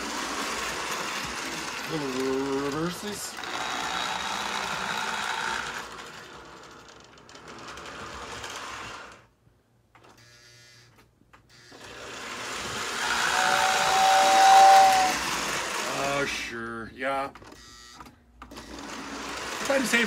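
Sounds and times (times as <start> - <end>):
toy train motor whirring: 0.0 - 9.3, 11.5 - 16.4, 18.5 - 20.0
two-tone train whistle: 13.1 - 15.2.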